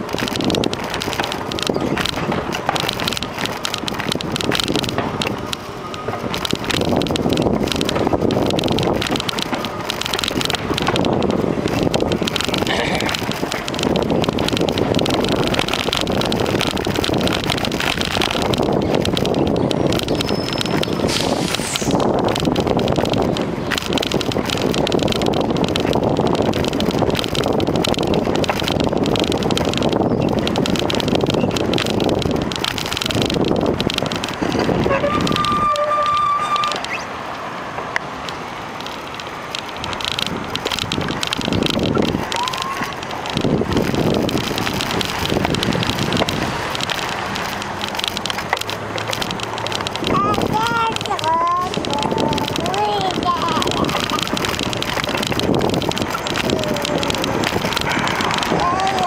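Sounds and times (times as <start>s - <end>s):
small clicks and rattles: 0.0s - 59.0s
wind buffeting microphone: 0.0s - 59.0s.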